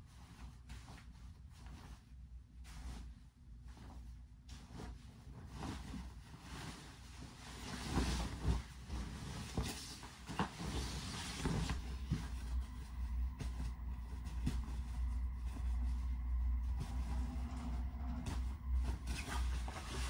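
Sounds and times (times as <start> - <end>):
bedding fabric rustling: 0.0 - 20.0
soft thumps on mattress: 7.6 - 17.2.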